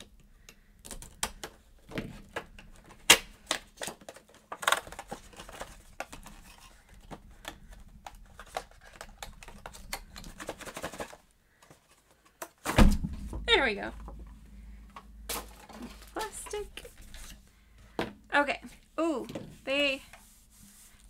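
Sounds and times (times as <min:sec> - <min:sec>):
cardboard box and wrapping crackling: 0:15.4 - 0:17.4.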